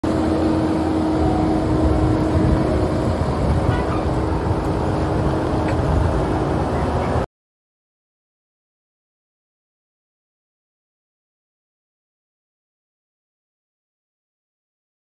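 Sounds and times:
constant hum: 0.0s - 7.3s
diesel engine running: 0.0s - 7.3s.

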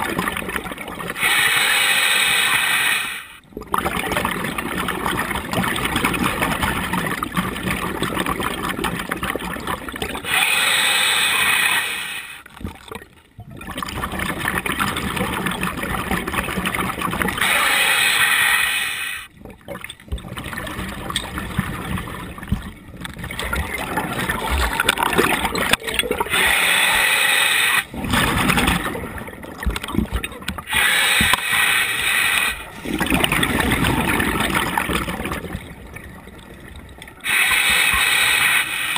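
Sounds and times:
bubbling regulator exhalation: 0.0s - 12.8s, 13.5s - 36.0s, 37.2s - 38.9s
hissing regulator inhalation: 1.2s - 3.4s, 10.3s - 12.4s, 17.4s - 19.3s, 26.3s - 27.9s, 30.7s - 32.8s, 37.2s - 38.9s.

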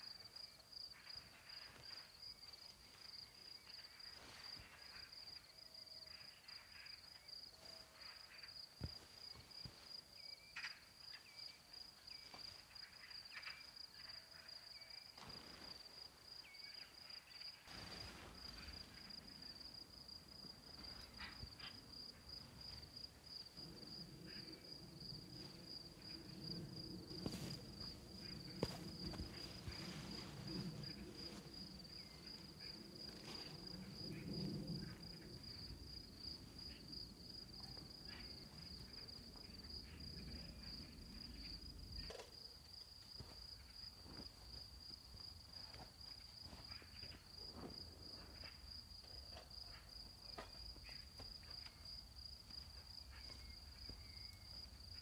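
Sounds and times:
crickets chirping: 0.0s - 55.0s
low rustling noise: 17.5s - 37.4s.

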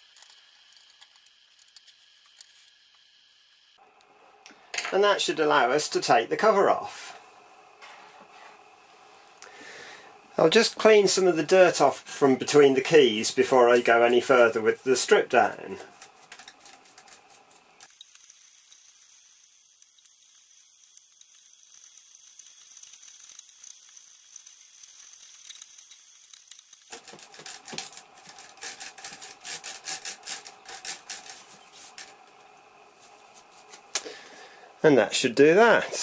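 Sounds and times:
brush scrubbing calculator keys: 15.9s - 32.2s.

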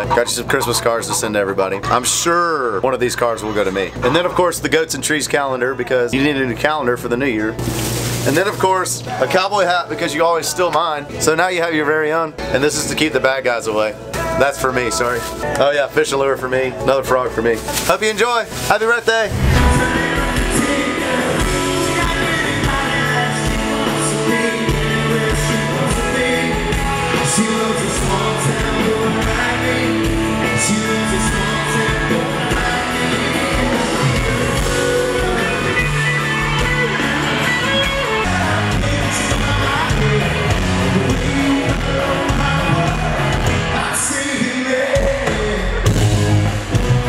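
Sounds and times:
song with singing: 19.3s - 36.0s, 37.0s - 46.0s.

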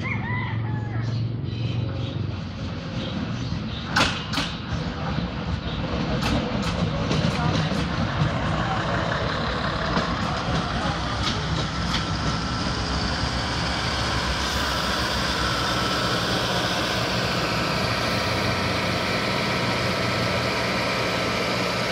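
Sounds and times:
train diesel engine running: 2.2s - 21.9s
high thin whine: 12.6s - 21.9s.

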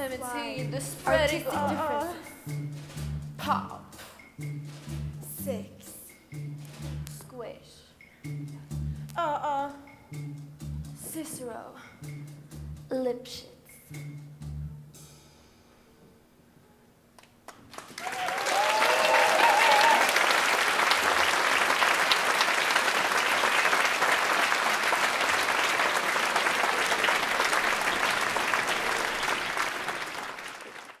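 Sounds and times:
people cheering: 1.1s - 2.1s, 17.8s - 31.0s
audience applauding: 17.2s - 31.0s.

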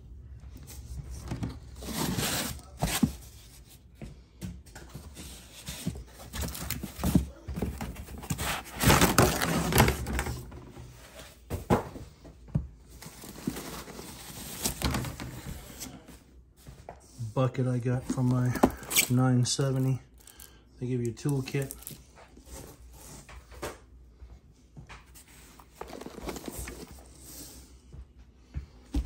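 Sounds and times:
plastic wrap rustling: 5.1s - 11.2s, 12.9s - 16.0s, 25.3s - 27.2s.

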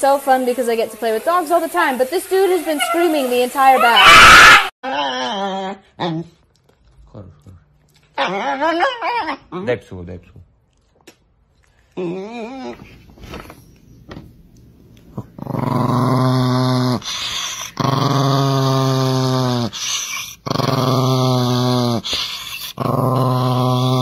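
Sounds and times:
small dog growling: 15.1s - 24.0s.

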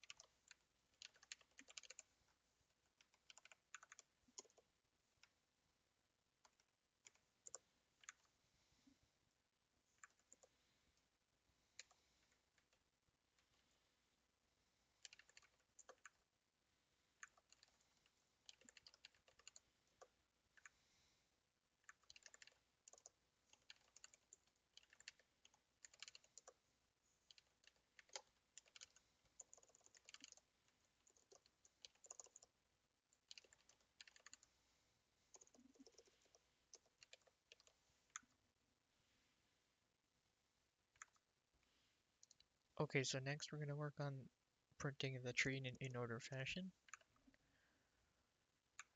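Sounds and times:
keyboard typing: 0.0s - 5.4s, 6.4s - 8.3s, 9.9s - 10.6s, 11.8s - 13.5s, 15.0s - 16.3s, 17.2s - 20.8s, 21.8s - 26.6s, 27.2s - 34.6s, 35.3s - 38.4s, 40.9s - 41.3s.

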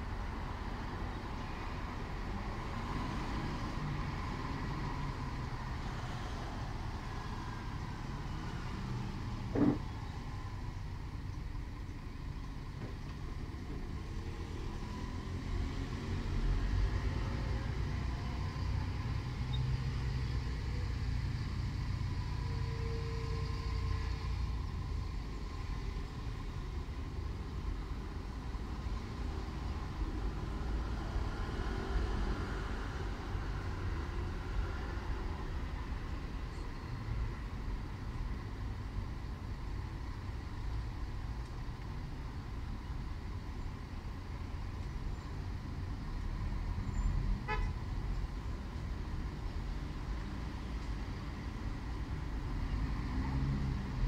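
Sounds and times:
passing cars: 0.0s - 54.0s.

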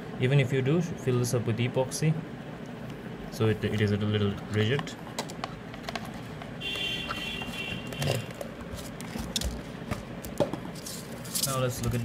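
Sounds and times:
multimeter leads clicking and rubbing: 3.7s - 12.0s.

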